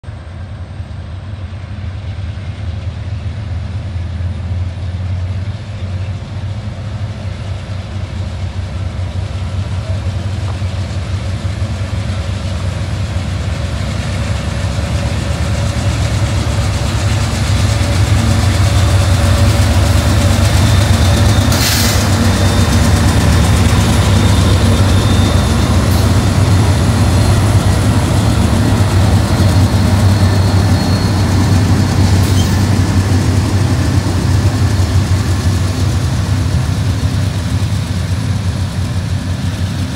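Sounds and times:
diesel locomotive engines rumbling: 0.0 - 39.9
brief hiss: 21.5 - 22.2.

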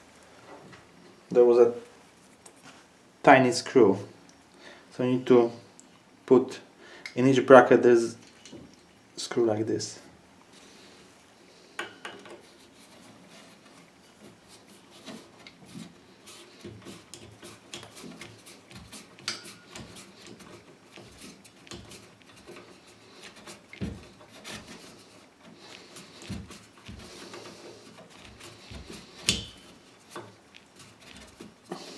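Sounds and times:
screwdriver clicks and scrapes on metal: 16.8 - 24.8, 29.2 - 31.5.

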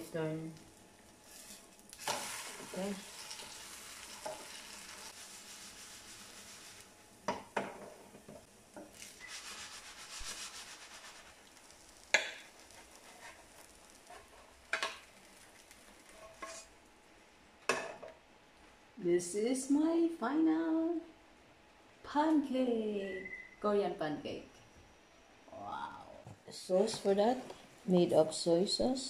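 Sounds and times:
batter sizzling in frying pan: 0.0 - 16.9.

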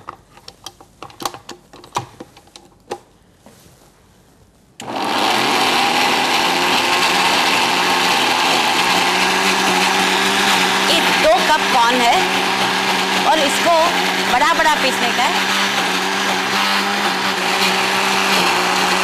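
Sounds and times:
mixer grinder motor grinding: 4.8 - 19.0.

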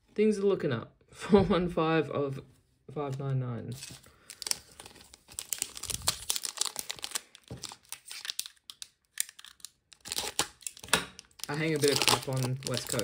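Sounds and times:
wrapper tearing and crinkling: 3.7 - 13.0.

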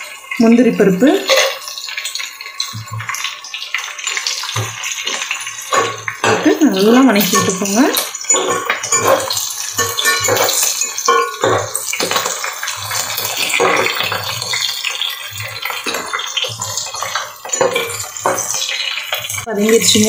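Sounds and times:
spices sizzling in hot oil: 0.0 - 20.0
spatula scraping pot: 4.4 - 20.0.

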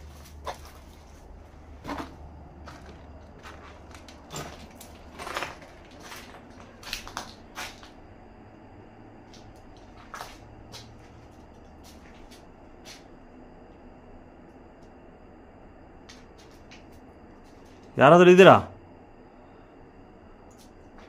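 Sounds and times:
scuffs and crunches on concrete: 0.0 - 8.0, 9.3 - 13.1.

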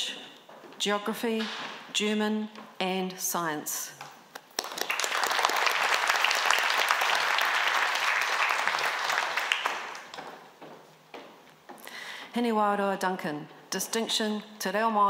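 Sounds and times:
audience applauding: 4.4 - 10.2.

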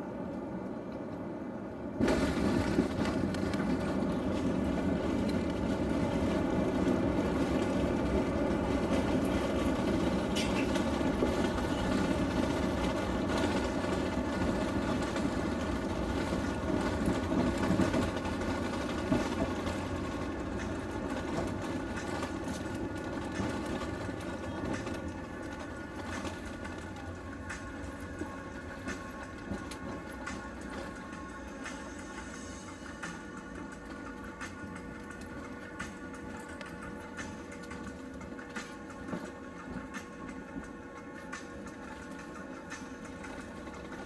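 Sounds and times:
runway rumble: 0.1 - 30.9.

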